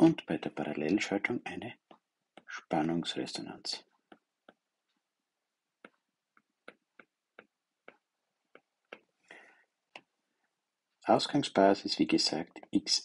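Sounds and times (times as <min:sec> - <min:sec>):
stylus tapping on screen: 0:01.8 - 0:02.5, 0:03.9 - 0:05.1, 0:05.7 - 0:09.2.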